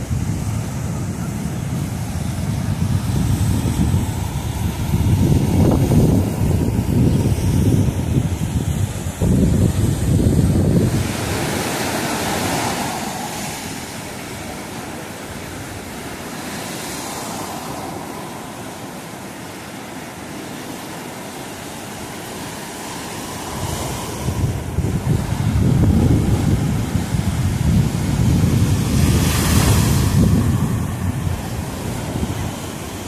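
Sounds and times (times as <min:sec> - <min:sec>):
wind buffeting the microphone: 0:00.0 - 0:19.6, 0:22.2 - 0:33.0
surf breaking on a sandy beach: 0:00.0 - 0:33.0.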